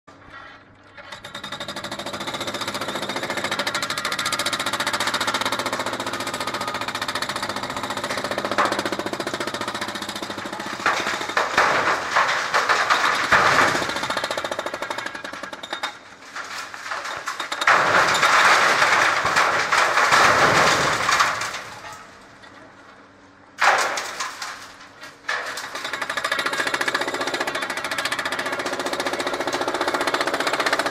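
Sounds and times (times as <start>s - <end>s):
jackhammer pounding concrete: 1.0s - 16.0s, 25.8s - 30.9s.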